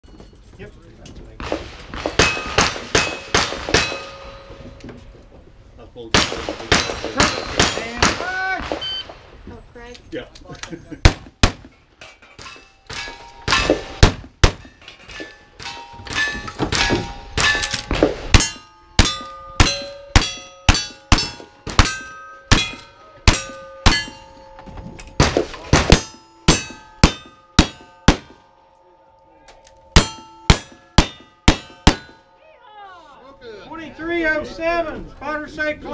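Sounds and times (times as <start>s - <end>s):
rifle gunshots: 1.4s - 4.2s, 6.1s - 9.4s, 25.2s - 28.4s
revolver gunshots: 1.4s - 4.4s, 6.1s - 9.4s, 25.2s - 28.5s
steel target clanging: 1.4s - 5.2s, 6.1s - 9.0s, 12.0s - 28.8s, 29.9s - 32.4s.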